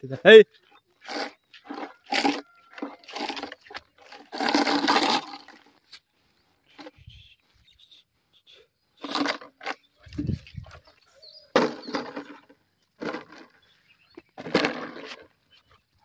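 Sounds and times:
plastic bottle crackling: 1.1 - 5.7.

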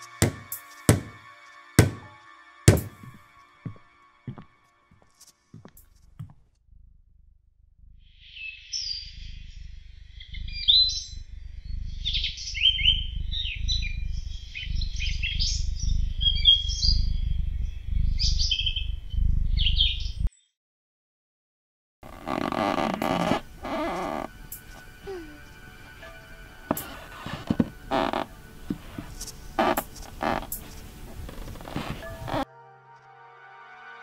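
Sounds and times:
steady low rumble: 6.6 - 20.3
small birds chirping: 8.2 - 20.3.

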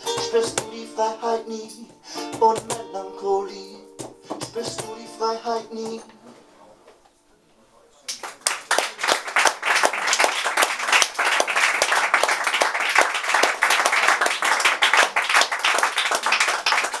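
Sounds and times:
audience applauding: 8.1 - 17.0
close sharp claps: 8.1 - 17.0.

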